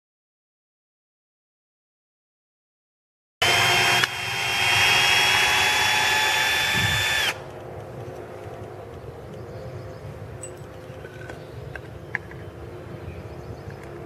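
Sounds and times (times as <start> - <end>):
cordless drill motor whine: 3.4 - 7.5.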